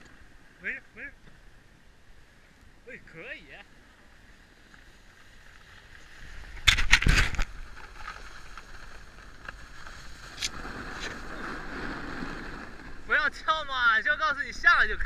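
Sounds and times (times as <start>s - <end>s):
snowboard sliding on snow: 4.0s - 14.5s
snowboard edge scraping snow: 4.2s - 13.6s.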